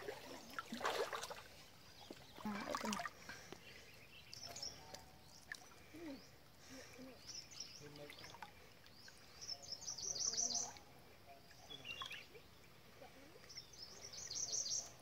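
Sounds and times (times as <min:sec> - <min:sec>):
wild birds chirping: 0:01.5 - 0:15.0.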